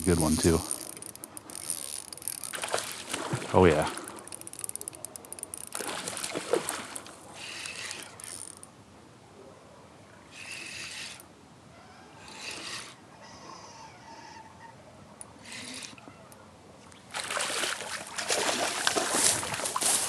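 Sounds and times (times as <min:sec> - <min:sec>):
fishing reel clicking and whirring: 0:00.0 - 0:02.6, 0:04.0 - 0:05.9, 0:07.0 - 0:08.7, 0:10.3 - 0:11.3, 0:12.2 - 0:13.0, 0:15.2 - 0:16.0.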